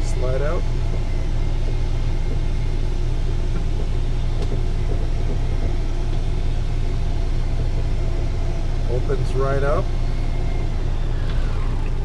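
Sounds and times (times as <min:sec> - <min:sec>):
engine idling low rumble: 0:00.0 - 0:12.0.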